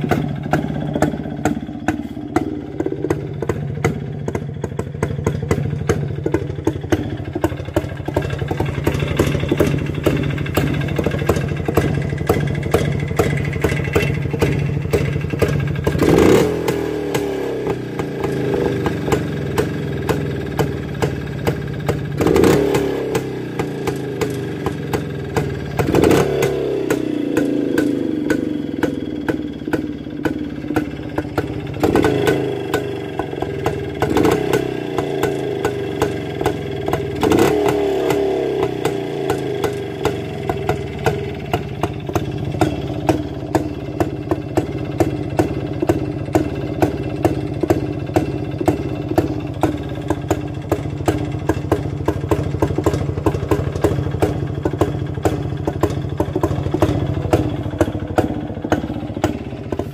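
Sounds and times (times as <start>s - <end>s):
two-stroke motorcycle engine idling: 0.0s - 59.9s.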